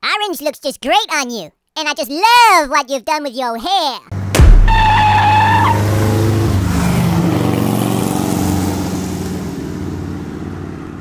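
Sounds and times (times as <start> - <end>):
car engine speeding away: 4.1 - 11.0
high squeal: 4.6 - 5.8.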